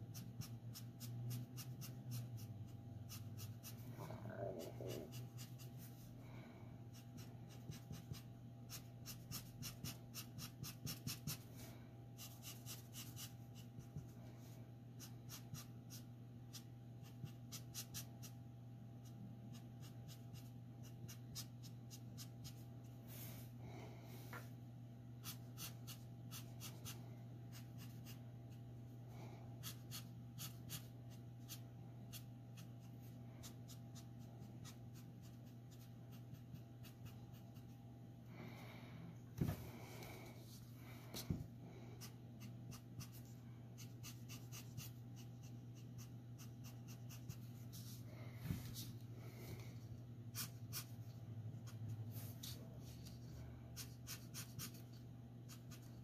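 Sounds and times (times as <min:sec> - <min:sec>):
steady low hum: 0:00.0 - 0:56.0
marker scratching on paper: 0:00.1 - 0:03.8, 0:06.9 - 0:11.4, 0:12.2 - 0:14.1, 0:25.2 - 0:28.3, 0:29.6 - 0:37.8, 0:42.0 - 0:48.0, 0:50.3 - 0:56.0.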